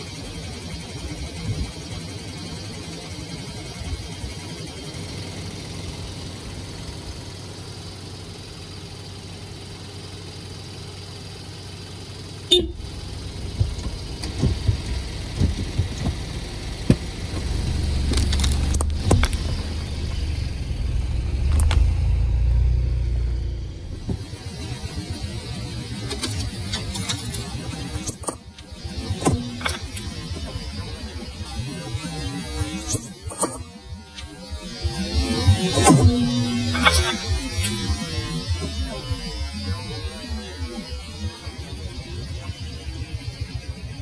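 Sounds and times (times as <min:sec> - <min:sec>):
car engine revving: 0:00.0 - 0:43.8
sharp clicks and knocks: 0:13.5 - 0:20.3.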